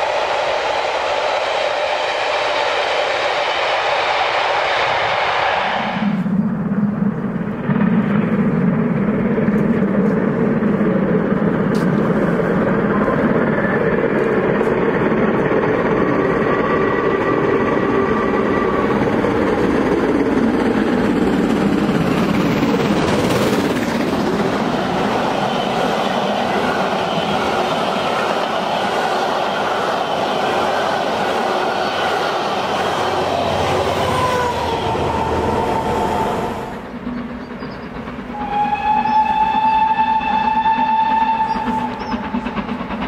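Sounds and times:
steam locomotive running at speed: 0.0 - 43.0
train carriages rushing past: 0.0 - 43.0.

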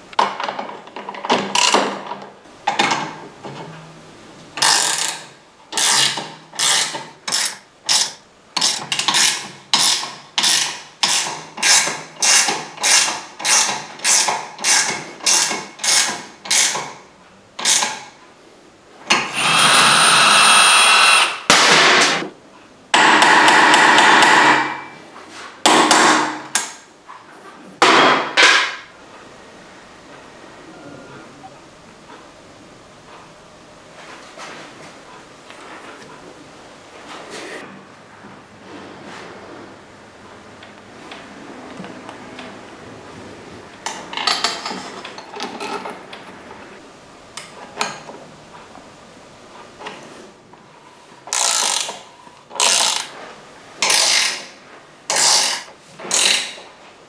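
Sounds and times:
loud steady noises: 19.1 - 24.9.

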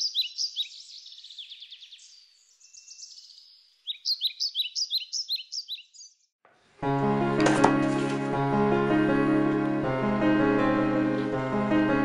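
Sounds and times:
songbirds chirping: 0.0 - 6.4.

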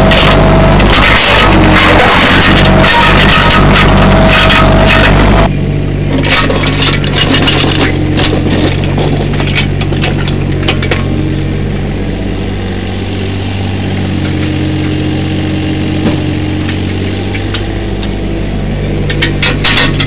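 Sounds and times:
bucket scraping stony ground: 0.0 - 5.5, 6.1 - 11.2
excavator diesel engine running: 0.0 - 20.0.

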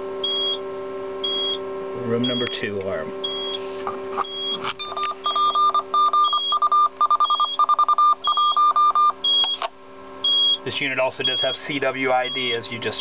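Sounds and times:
steady low hum: 0.0 - 13.0
morse code tone: 1.2 - 1.6, 2.2 - 2.6, 3.2 - 3.6, 4.2 - 9.6, 10.2 - 13.0.

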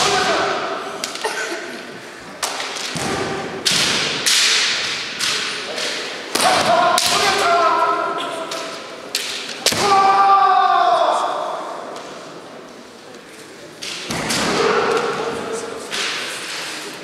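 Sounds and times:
bamboo sword strikes: 2.5 - 7.3
long drawn-out shout: 9.8 - 11.7.

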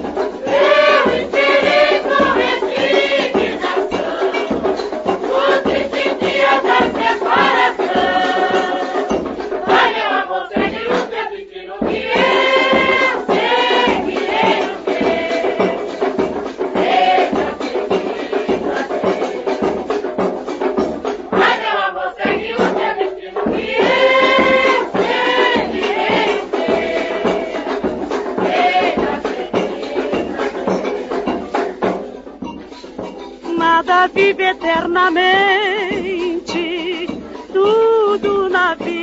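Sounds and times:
voices singing: 0.0 - 32.4, 33.4 - 39.0.

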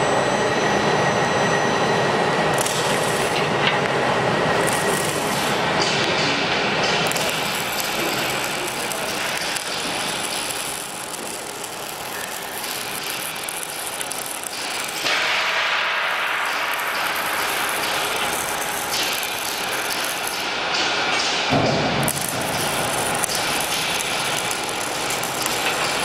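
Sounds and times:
lift mechanical running noise: 0.0 - 26.0
ratchet-like clicking: 7.1 - 15.2, 16.4 - 20.4, 22.1 - 26.0.

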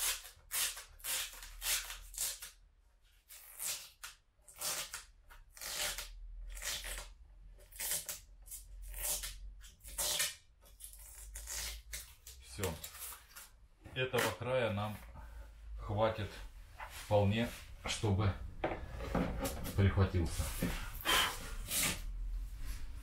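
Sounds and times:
plastic film peeling: 0.0 - 14.5.

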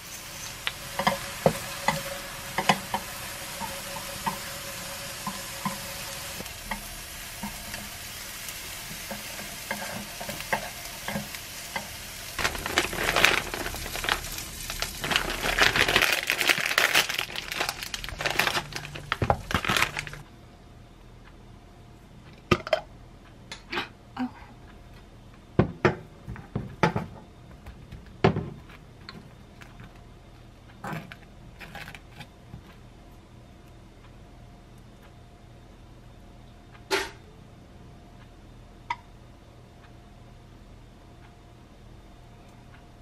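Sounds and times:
plastic packaging crinkling: 12.4 - 20.2.

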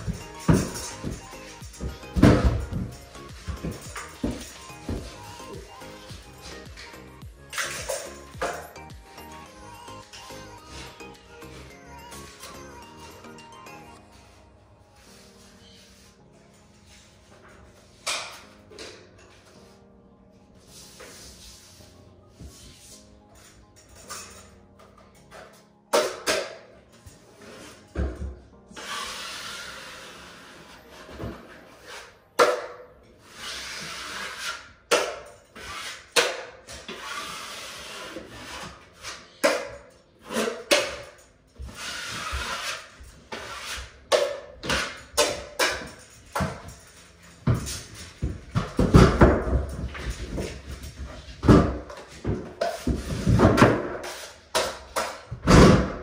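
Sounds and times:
taping knife scraping compound: 33.2 - 34.7, 41.7 - 44.0.

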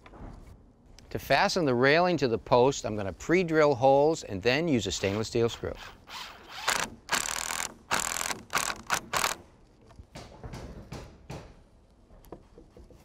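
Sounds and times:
power drill drilling into wood: 6.1 - 9.4.

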